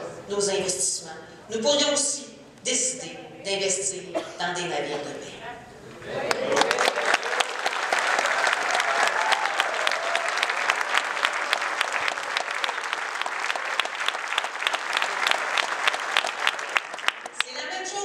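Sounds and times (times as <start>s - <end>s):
audience applauding: 6.1s - 17.5s.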